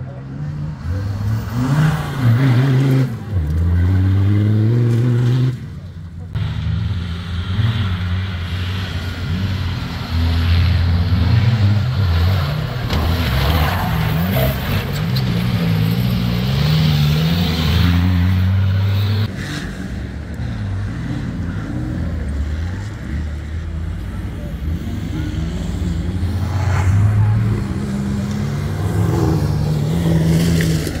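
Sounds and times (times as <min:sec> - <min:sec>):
off-road engines revving: 0:00.0 - 0:31.0.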